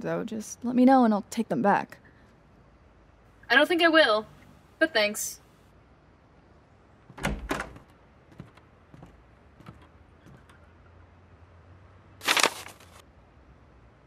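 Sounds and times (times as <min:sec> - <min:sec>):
stack of papers rustling: 0:12.2 - 0:13.0.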